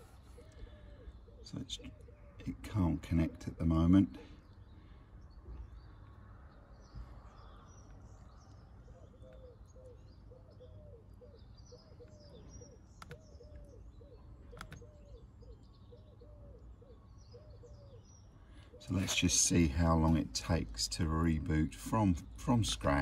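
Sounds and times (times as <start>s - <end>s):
birds chirping: 0.0s - 23.0s
sharp clicks: 13.0s - 13.6s, 14.5s - 14.9s.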